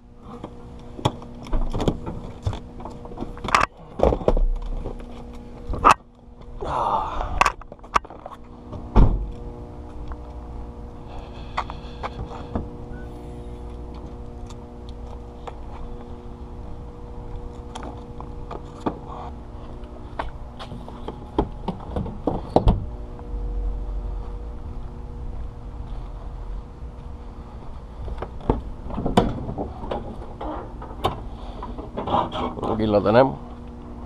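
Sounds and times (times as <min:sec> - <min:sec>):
steady mechanical hum: 0:00.0 - 0:34.0
loud thunks: 0:08.8 - 0:09.3.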